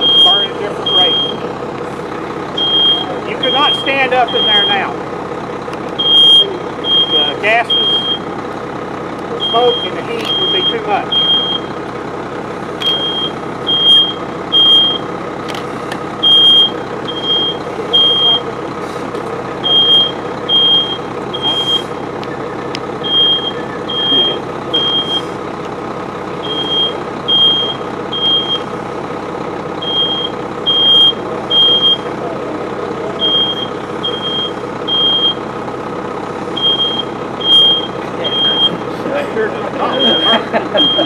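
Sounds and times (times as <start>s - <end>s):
smoke alarm beeping: 0.0s - 1.5s, 2.6s - 4.9s, 6.0s - 8.2s, 9.4s - 11.8s, 12.8s - 15.1s, 16.2s - 18.5s, 19.6s - 22.0s, 23.0s - 25.3s, 26.4s - 28.7s, 29.8s - 32.1s, 33.2s - 35.4s, 36.6s - 38.8s, 39.8s - 41.0s.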